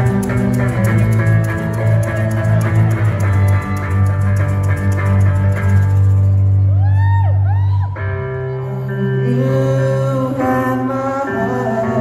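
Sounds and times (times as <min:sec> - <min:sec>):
live rock band playing: 0:00.0 - 0:06.8
person singing: 0:08.3 - 0:12.0.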